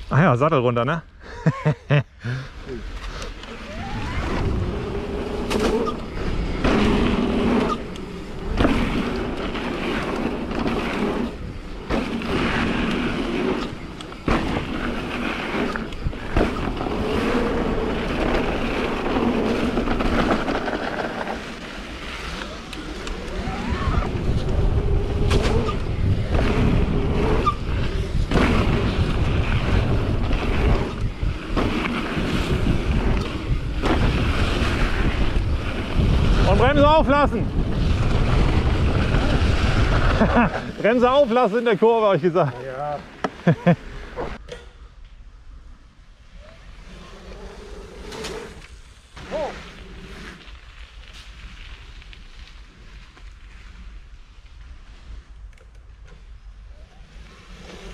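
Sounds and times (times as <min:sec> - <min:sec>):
tyres rumbling on dirt: 0:03.5 - 0:44.4
bike knocking and rattling: 0:04.2 - 0:41.3
wind buffeting microphone: 0:22.8 - 0:41.2.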